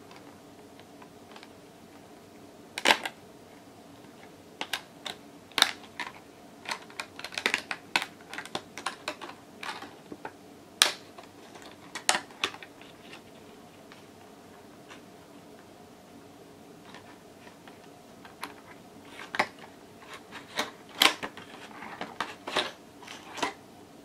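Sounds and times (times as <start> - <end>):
plastic packaging clicks and crackles: 2.8 - 3.2, 4.1 - 13.3, 16.9 - 23.6.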